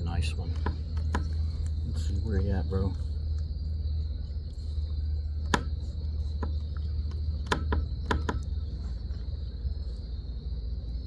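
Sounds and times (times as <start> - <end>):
insects droning: 0.0 - 11.0
sharp clicks and knocks: 0.5 - 1.8, 5.4 - 5.8, 6.4 - 8.6.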